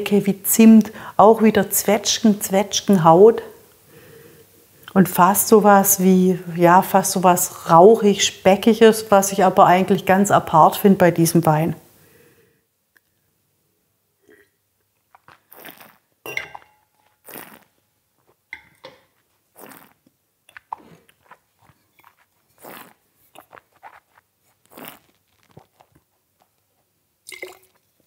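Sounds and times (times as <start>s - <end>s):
mouth slurping and swishing wine: 15.1s - 16.0s, 17.2s - 17.7s, 19.5s - 26.6s, 27.3s - 28.0s
spitting into metal spittoon: 15.1s - 16.0s, 17.2s - 17.7s, 19.6s - 25.6s.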